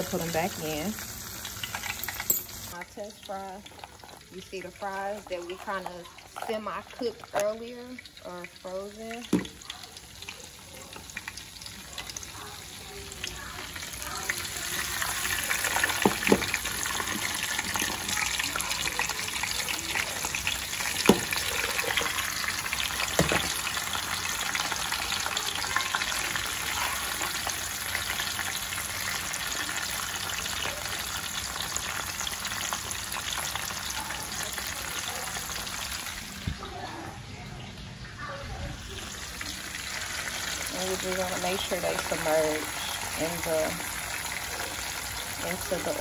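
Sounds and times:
fries sizzling in oil: 0.0 - 46.0.

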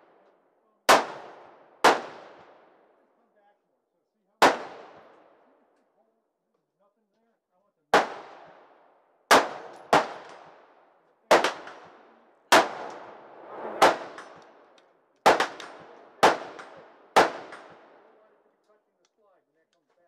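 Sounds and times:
rifle shots echoing: 0.9 - 3.0, 4.4 - 5.6, 7.9 - 18.4.

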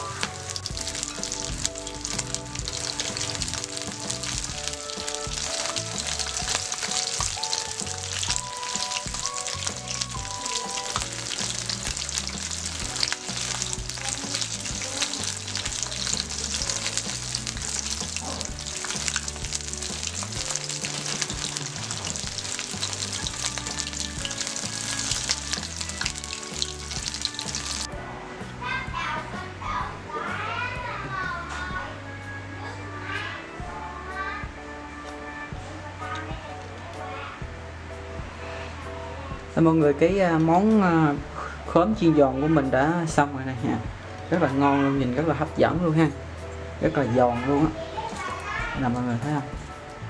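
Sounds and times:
food sizzling in hot oil: 0.0 - 27.9, 47.5 - 49.8
background music: 0.0 - 50.0.

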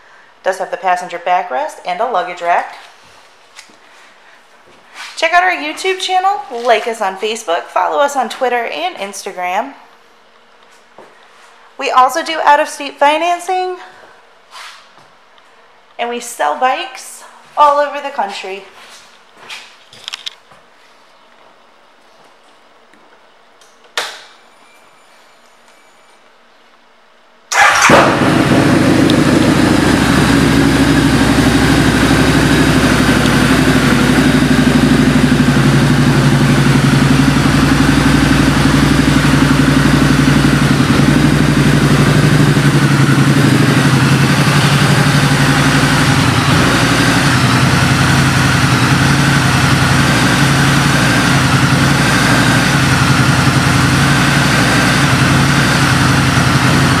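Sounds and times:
motorcycle engine idling: 27.5 - 57.0.

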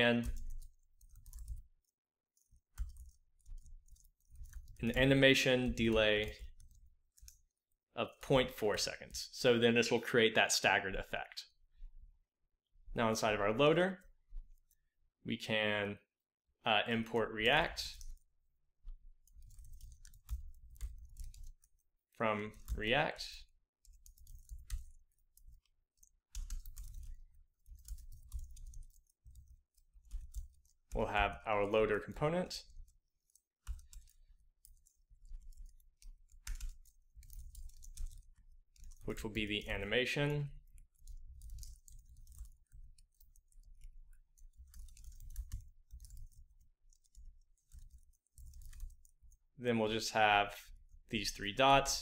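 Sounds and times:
computer keyboard typing: 0.2 - 7.5, 17.4 - 49.5.

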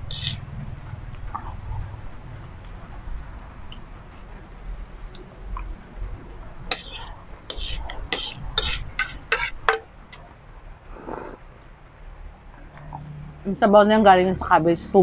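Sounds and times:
spoon scraping ceramic plate: 6.7 - 9.8.

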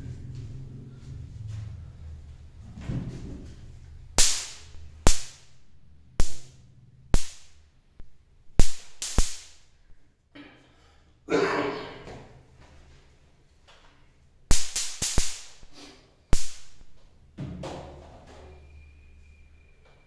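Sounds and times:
sharp slap-like cracks: 4.2 - 5.6, 6.2 - 7.6, 8.6 - 9.7, 14.5 - 15.7, 16.3 - 16.9.

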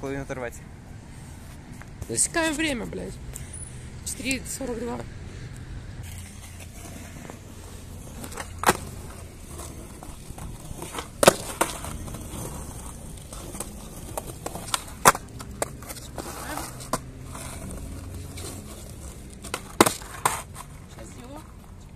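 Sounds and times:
bike clacking on ground: 8.1 - 21.1.

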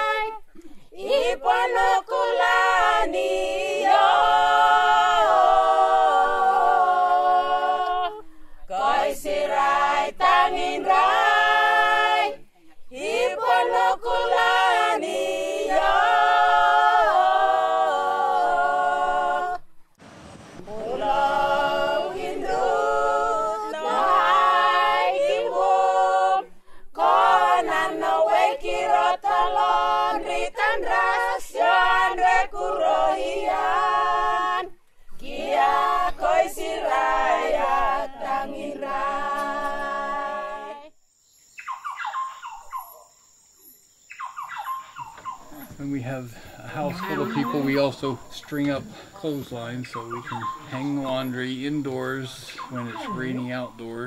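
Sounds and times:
voices singing a cappella: 0.0 - 19.7, 20.6 - 41.0, 45.0 - 54.0.

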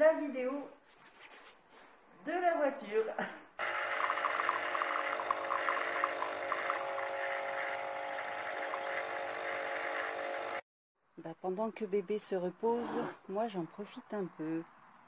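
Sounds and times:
coffee machine pump humming: 3.6 - 10.6
coffee streaming into mug: 3.6 - 10.6.

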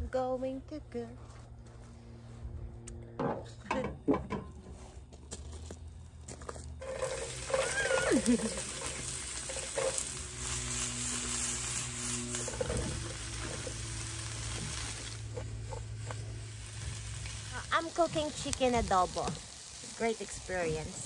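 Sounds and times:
onions sizzling in a pan: 6.8 - 21.0.

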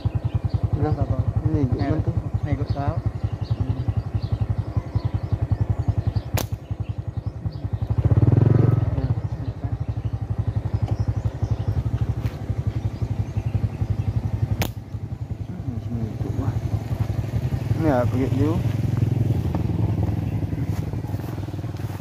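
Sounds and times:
motorcycle engine running: 0.0 - 22.0
sharp click: 6.4 - 6.6, 14.6 - 15.0.

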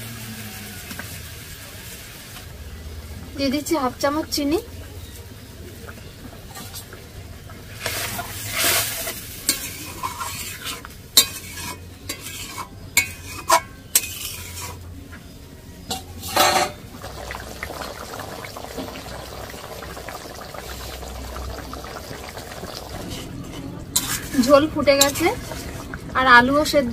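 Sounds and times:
curry bubbling: 0.6 - 26.9
metal spatula scraping a pan: 7.7 - 14.8, 15.9 - 16.8, 23.0 - 25.9.

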